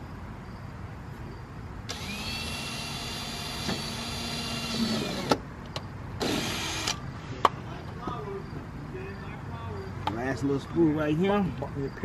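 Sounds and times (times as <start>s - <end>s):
power drill running: 1.9s - 5.4s, 6.2s - 7.0s.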